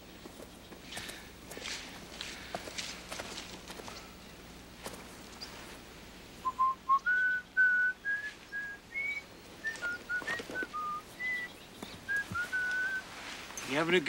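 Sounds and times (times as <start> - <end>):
person whistling a tune: 6.4 - 11.5, 12.1 - 13.0.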